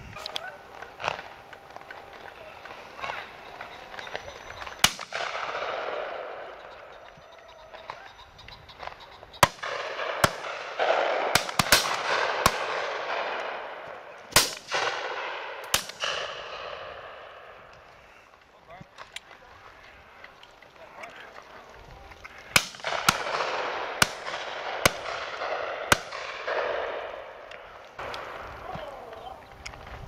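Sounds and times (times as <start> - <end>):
rolling echo: 0.0 - 30.0
shotgun shots: 0.7 - 6.9, 9.4 - 17.7, 22.5 - 28.4.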